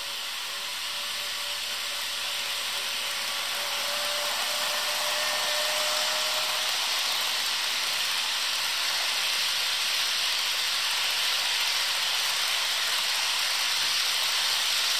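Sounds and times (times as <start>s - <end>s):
faint motor whine: 0.0s - 14.9s
model train wheels hissing on rails: 0.0s - 14.9s.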